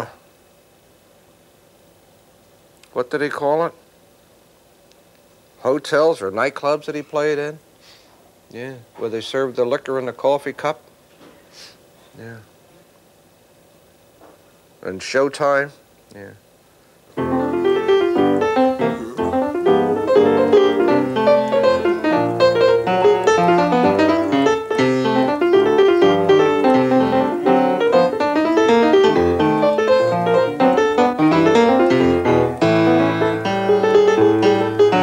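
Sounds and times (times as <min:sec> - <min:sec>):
solo jazz piano: 0:17.1 - 0:35.0.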